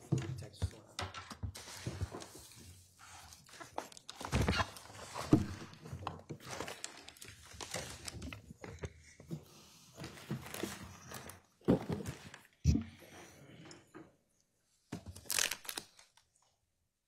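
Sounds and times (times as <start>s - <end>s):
papers rustling and crinkling: 0.0s - 12.6s, 14.8s - 16.3s.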